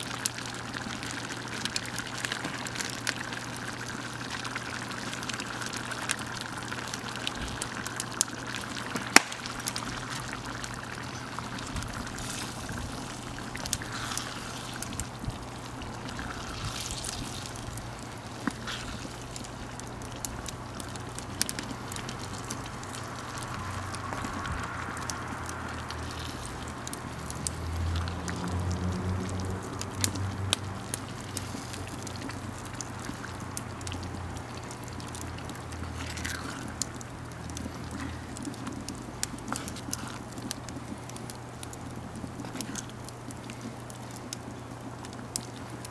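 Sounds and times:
sauce simmering and bubbling: 0:00.0 - 0:45.9
wood fire crackling: 0:00.0 - 0:45.9
wooden spoon stirring sauce: 0:07.6 - 0:24.5, 0:29.7 - 0:44.0.

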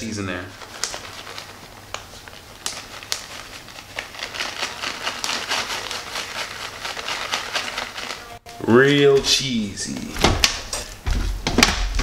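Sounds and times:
plastic bag crinkling: 0:00.0 - 0:08.4
shredded cheese pouring: 0:00.4 - 0:08.2.

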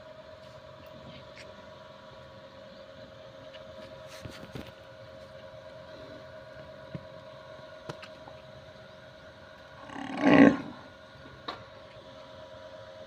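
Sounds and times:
cattle call: 0:09.8 - 0:10.8.

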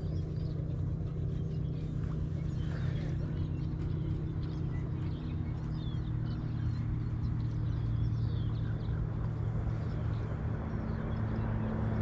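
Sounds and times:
low motor hum: 0:00.0 - 0:12.0
small birds chirping: 0:00.0 - 0:12.0.

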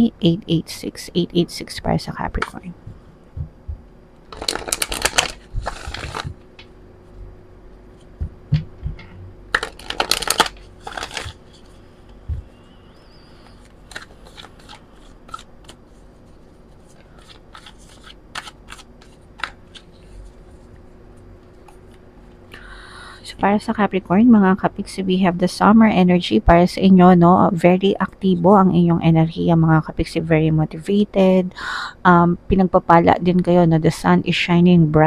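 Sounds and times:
cards being riffle-shuffled: 0:04.3 - 0:06.4, 0:09.5 - 0:12.0, 0:13.4 - 0:20.8.

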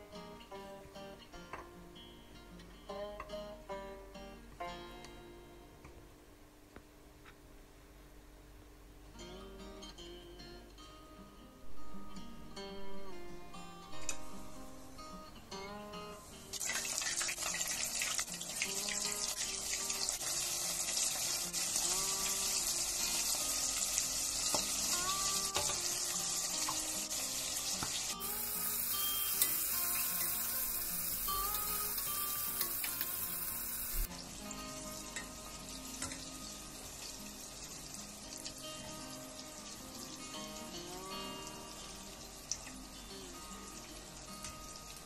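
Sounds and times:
food deep-frying in oil: 0:16.5 - 0:34.1.

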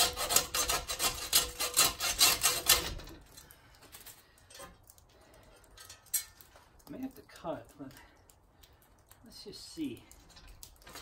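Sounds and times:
feathers scraping on metal: 0:00.0 - 0:03.2.

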